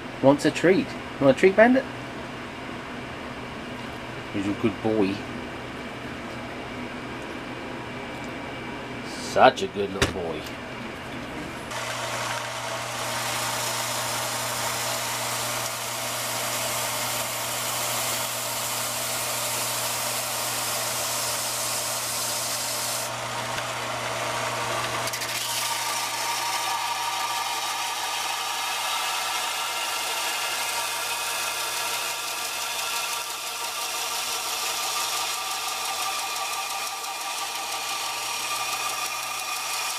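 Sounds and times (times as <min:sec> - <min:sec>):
belt sander humming: 0:11.5 - 0:39.9
metal grinding on sanding belt: 0:11.7 - 0:23.1, 0:25.0 - 0:39.9.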